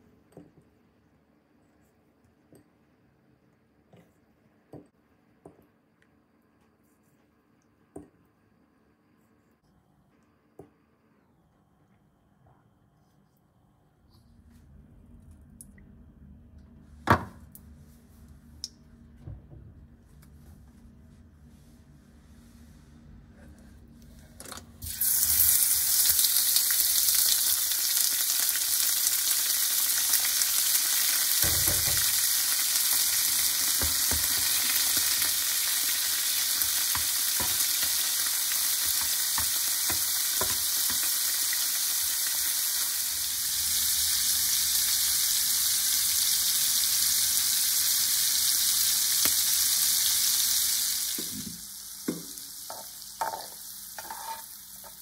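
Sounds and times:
shrimp sizzling in a frying pan: 0:24.9 - 0:55.0.

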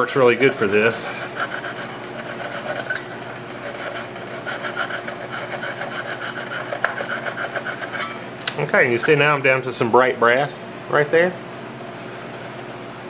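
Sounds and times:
sandpaper scrubbing on metal: 0:00.0 - 0:08.1.

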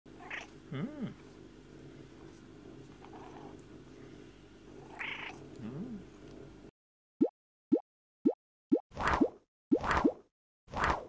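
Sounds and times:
cat low voice sounds: 0:00.2 - 0:01.3, 0:04.9 - 0:06.2
cat purring: 0:02.8 - 0:03.7, 0:04.7 - 0:06.1.

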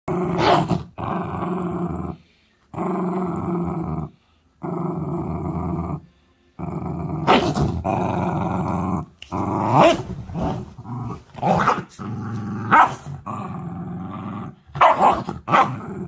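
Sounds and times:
small dog play-growling: 0:06.6 - 0:14.6
dog snarls: 0:07.2 - 0:08.5.

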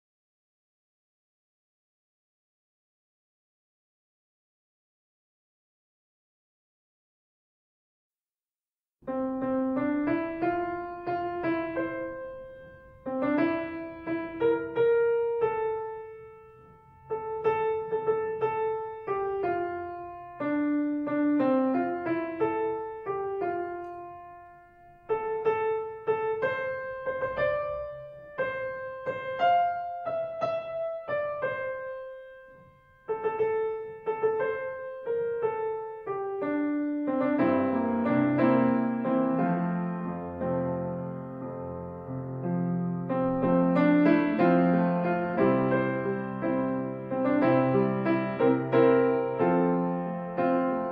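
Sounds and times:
solo piano hymn chords: 0:09.0 - 0:50.9.

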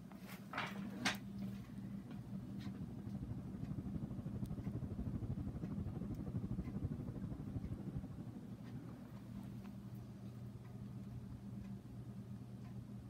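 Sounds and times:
fan air buffeting microphone: 0:00.0 - 0:13.0.

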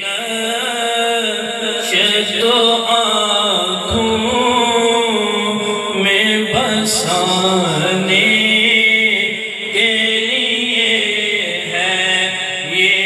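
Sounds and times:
man chanting devotional poem: 0:00.0 - 0:13.0
held low drone note: 0:03.9 - 0:05.9.

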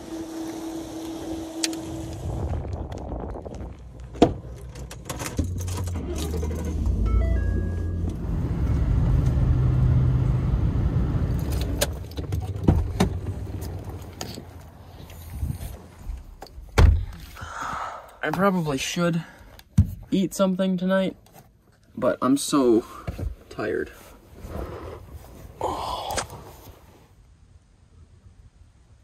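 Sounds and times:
truck engine rumble: 0:00.0 - 0:17.4.

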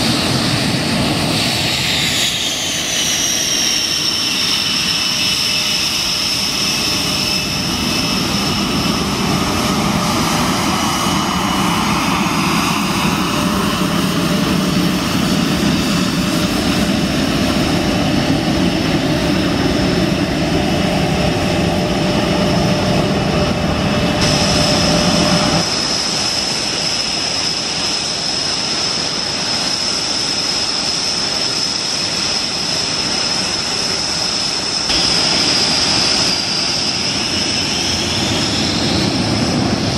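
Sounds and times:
jet engines running: 0:00.0 - 0:39.9.

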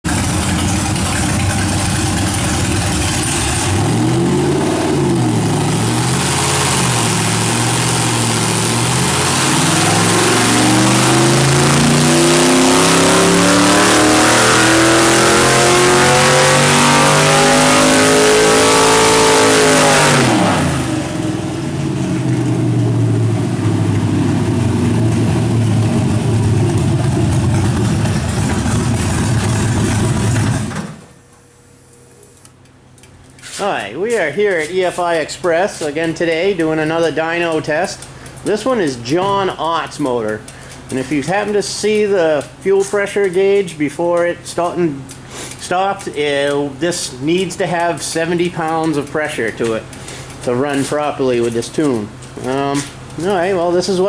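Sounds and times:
engine revving on dyno: 0:00.1 - 0:31.2.

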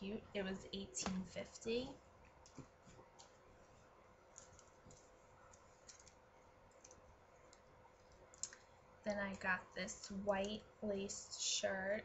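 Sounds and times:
faint room hum: 0:00.0 - 0:12.0
clothes rustling and clicking: 0:02.2 - 0:08.7.

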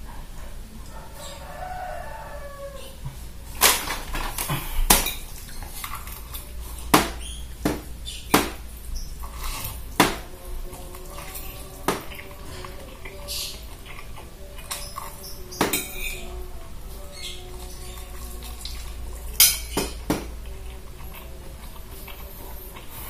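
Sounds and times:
eating noises: 0:00.0 - 0:23.0
cutlery clinking against bowl: 0:03.6 - 0:07.4, 0:14.6 - 0:16.3, 0:17.2 - 0:20.3.

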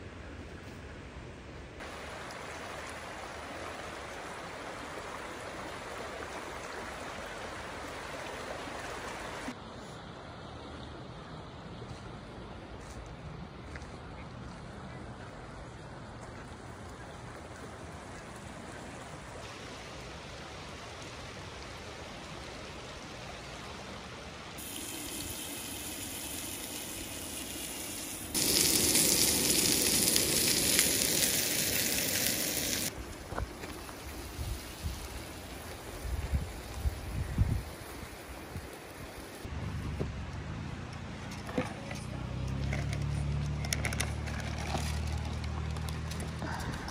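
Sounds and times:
steaks sizzling in a frying pan: 0:27.6 - 0:32.9
wind on microphone: 0:35.9 - 0:38.7.

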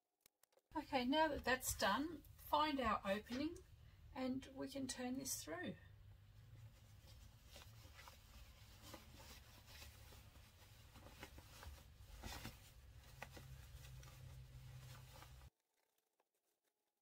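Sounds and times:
fabric rustling: 0:06.4 - 0:15.5.

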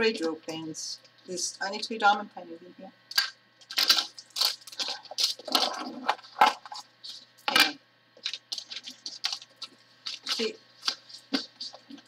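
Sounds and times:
cellophane crinkling: 0:03.6 - 0:07.6, 0:08.2 - 0:12.0.

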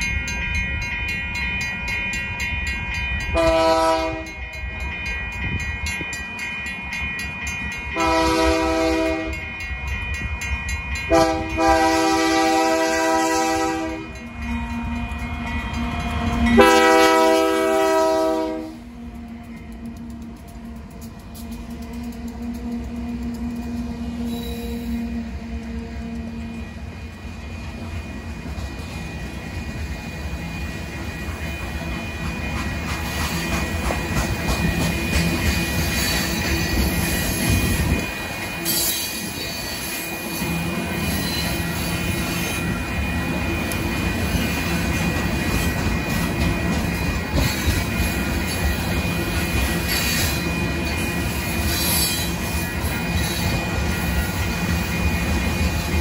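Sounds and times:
train wheels rumbling on rail: 0:00.0 - 0:56.0
high wheel squeals: 0:24.1 - 0:25.0.

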